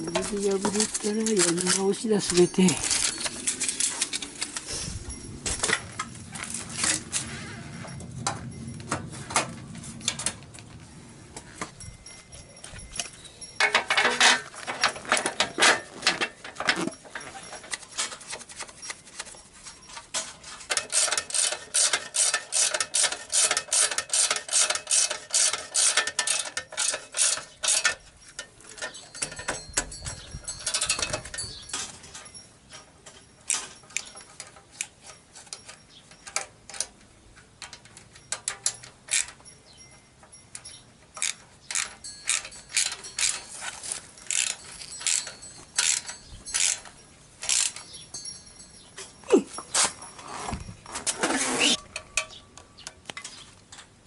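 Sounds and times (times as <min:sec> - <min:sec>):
ratchet wrench clicking: 0:20.7 - 0:28.0, 0:40.5 - 0:43.4, 0:44.3 - 0:47.8.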